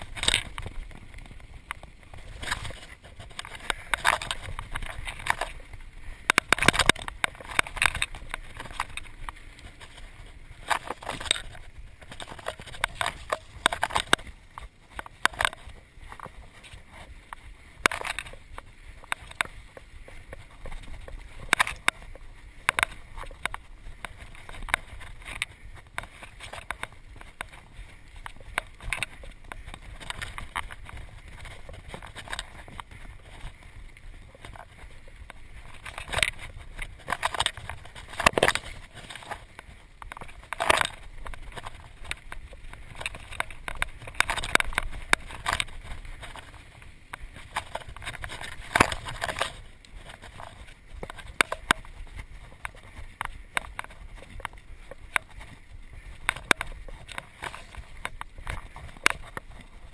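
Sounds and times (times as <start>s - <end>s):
bike rattling over bumps: 0.0s - 59.9s
bike tyres rumbling on dirt: 0.0s - 59.9s.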